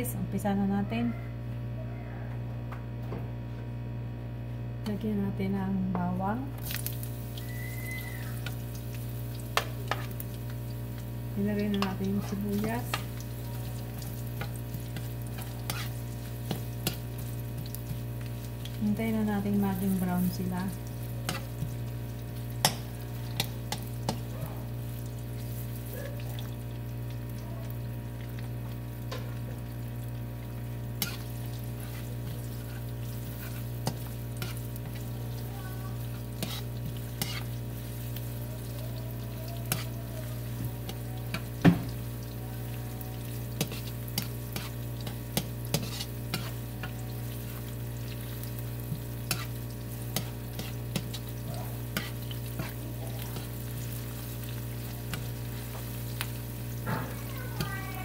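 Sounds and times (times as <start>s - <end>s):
steady low hum: 0.0s - 58.0s
onions sizzling in oil: 6.6s - 58.0s
spatula scraping and tapping pan: 9.5s - 10.2s, 14.2s - 18.8s, 21.2s - 21.9s, 22.5s - 24.3s, 31.0s - 35.1s, 36.1s - 37.6s, 43.5s - 47.7s, 48.8s - 57.8s.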